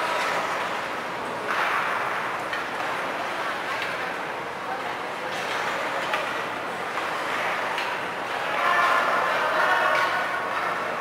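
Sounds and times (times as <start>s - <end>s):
arena noise: 0.0s - 11.0s.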